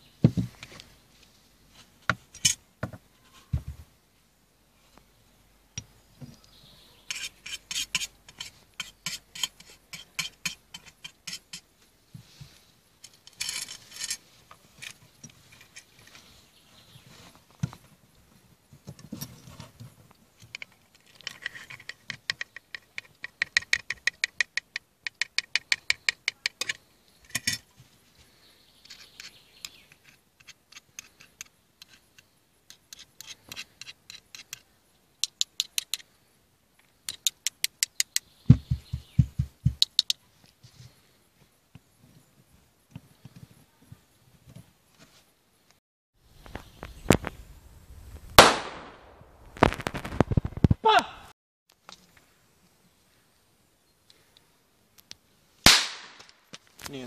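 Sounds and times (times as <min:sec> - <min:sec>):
knife scraping match heads: 0:07.1 - 0:11.7.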